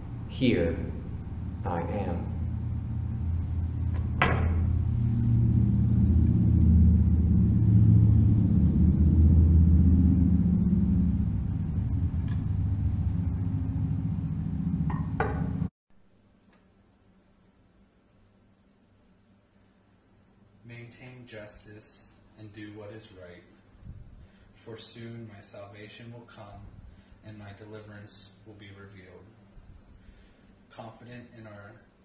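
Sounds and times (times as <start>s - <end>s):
steady low rumble: 0.0s - 15.7s, 20.7s - 30.3s.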